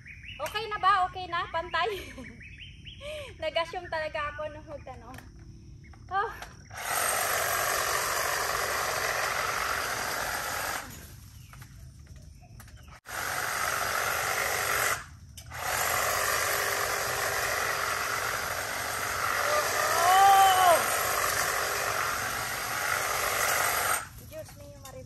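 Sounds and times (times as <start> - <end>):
hedge trimmer running: 6.7 - 11.6, 13.0 - 24.4.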